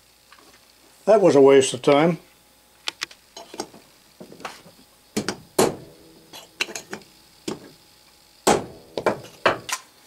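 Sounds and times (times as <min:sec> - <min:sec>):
hammer tapping metal punch: 0:05.2 - 0:07.8, 0:08.5 - 0:09.8.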